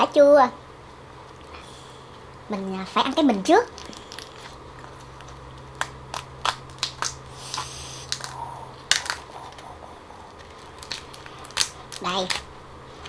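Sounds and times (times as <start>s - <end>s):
lobster shell cracking: 3.7s - 9.7s, 10.3s - 12.7s.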